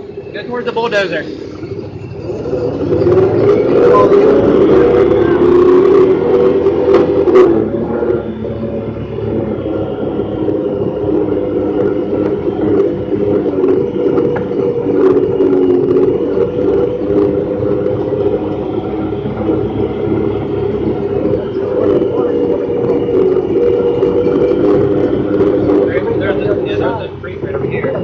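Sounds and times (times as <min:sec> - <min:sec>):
vehicle engine cruising: 0:00.0 - 0:28.0.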